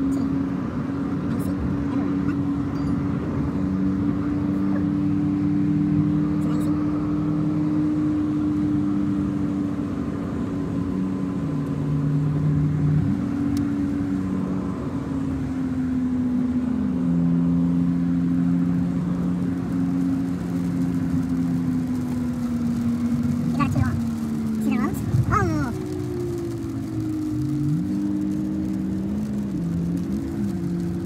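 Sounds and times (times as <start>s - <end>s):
car engine hum: 0.0s - 31.0s
wet road noise: 0.0s - 31.0s.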